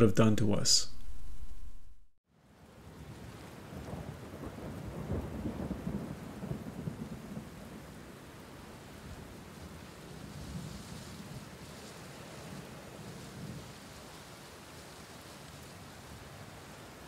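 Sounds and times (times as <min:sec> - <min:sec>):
steady rain: 0:02.3 - 0:17.0
low rumble of thunder: 0:02.8 - 0:11.8, 0:12.4 - 0:13.7.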